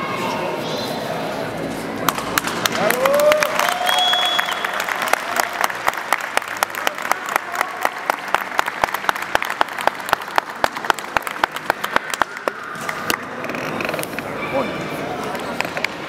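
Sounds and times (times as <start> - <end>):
sharp rhythmic claps: 2.0 - 13.3
spectators applauding: 2.4 - 13.2.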